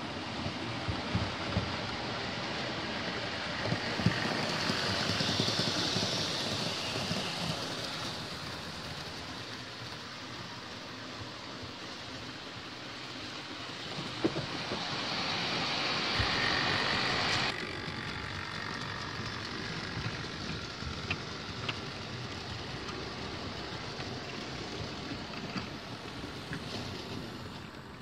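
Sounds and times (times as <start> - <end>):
wheels rumbling over rails: 0.1 - 28.0
model train motor whirring: 1.6 - 27.8.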